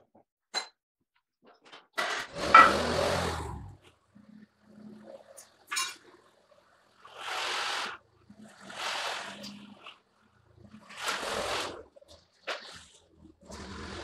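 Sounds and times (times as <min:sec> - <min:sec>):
short bursts of hissing: 0:07.2 - 0:08.0.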